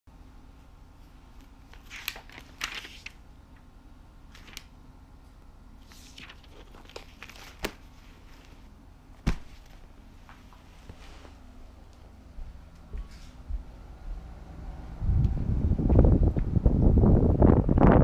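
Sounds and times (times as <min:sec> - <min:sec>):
pages turning: 0:01.4 - 0:03.2, 0:04.3 - 0:04.7, 0:05.8 - 0:11.4
book thumping down: 0:09.2 - 0:09.8.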